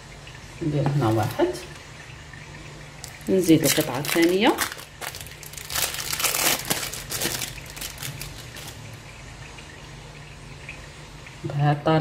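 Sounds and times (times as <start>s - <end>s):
low steady hum: 0.0s - 12.0s
plastic wrapper crinkling: 3.0s - 9.0s.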